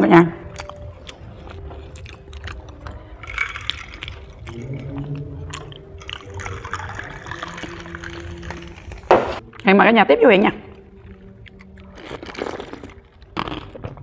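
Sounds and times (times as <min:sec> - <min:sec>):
cola pouring into glass mug: 0:03.2 - 0:09.4.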